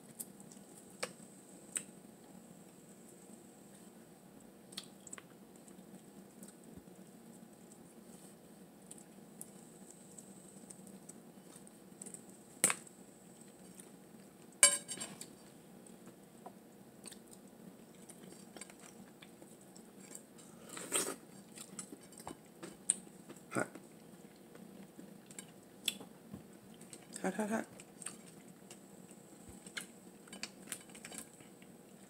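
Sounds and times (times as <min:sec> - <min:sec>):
chewing: 0:04.7 - 0:07.9, 0:17.0 - 0:32.0.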